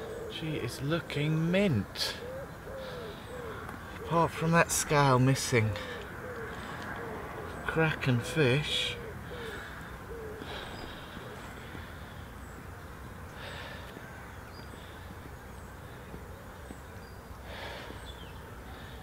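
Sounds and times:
small birds chirping: 0:00.0 - 0:19.0
breathy huffs: 0:02.2 - 0:04.0, 0:05.7 - 0:07.2, 0:09.1 - 0:16.4, 0:17.4 - 0:19.0.

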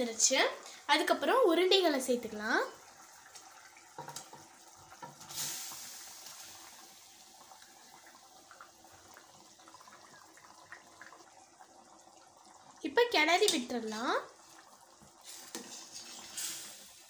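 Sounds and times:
gravy bubbling faintly: 0:00.0 - 0:17.0
food plopping into liquid: 0:03.0 - 0:05.6
splash in a pan: 0:03.4 - 0:09.1, 0:15.2 - 0:17.0.

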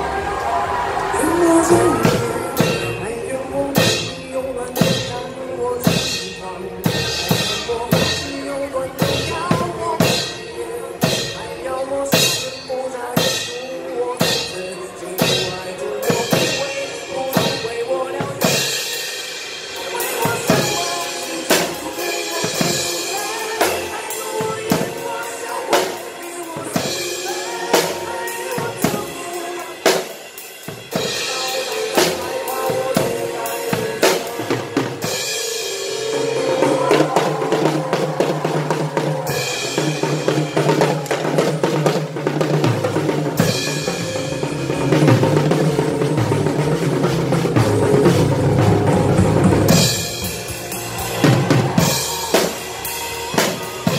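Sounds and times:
drum kit beat: 0:00.0 - 0:53.9
pop music backing track: 0:00.0 - 0:53.9.

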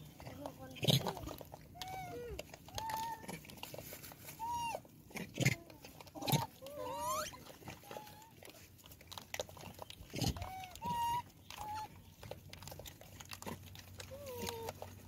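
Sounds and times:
monkeys cooing: 0:00.0 - 0:03.6, 0:04.4 - 0:08.5, 0:09.5 - 0:12.3, 0:14.0 - 0:14.9.

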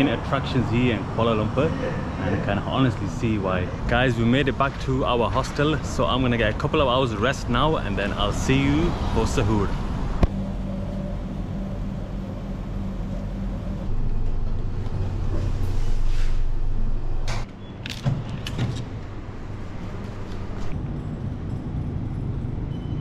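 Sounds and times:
lift car humming: 0:09.5 - 0:17.5.

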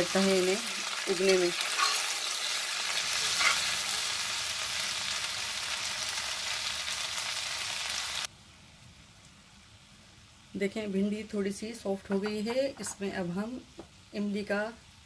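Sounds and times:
vegetables sizzling in oil: 0:00.0 - 0:15.0
metal spatula stirring: 0:01.6 - 0:02.4, 0:03.2 - 0:03.7
faint background hiss: 0:08.2 - 0:15.0.

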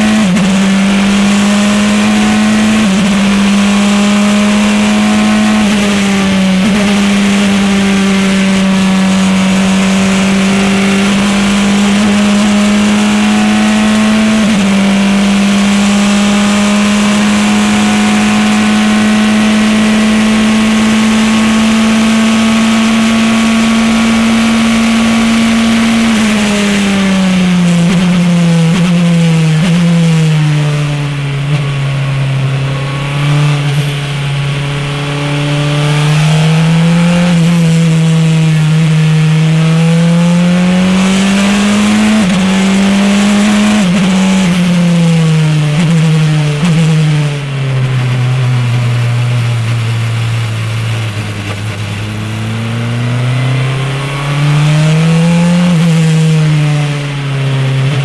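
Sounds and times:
racing car engine revving: 0:00.0 - 0:58.0.

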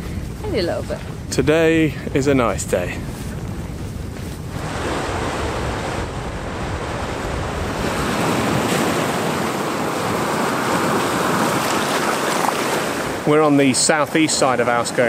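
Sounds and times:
waves breaking on rock: 0:04.5 - 0:14.8.

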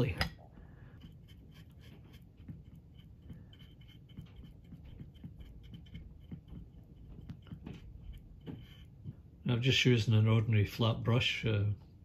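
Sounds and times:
paintbrush scratchy strokes: 0:01.0 - 0:09.8.

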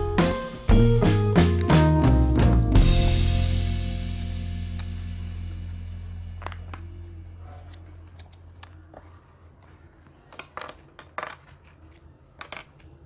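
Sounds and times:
background music: 0:00.0 - 0:06.7.

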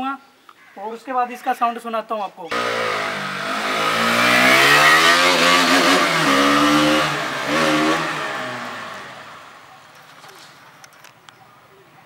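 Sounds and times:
motorcycle accelerating past: 0:02.5 - 0:09.7.

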